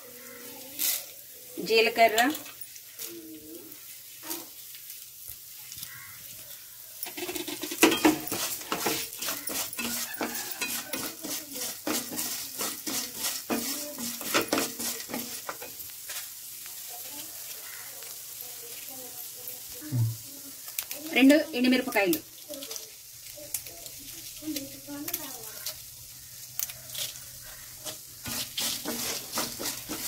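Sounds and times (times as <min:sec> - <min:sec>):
light sizzle: 0:00.0 - 0:30.0
spatula scraping and rattling in pan: 0:05.8 - 0:19.7, 0:20.5 - 0:30.0.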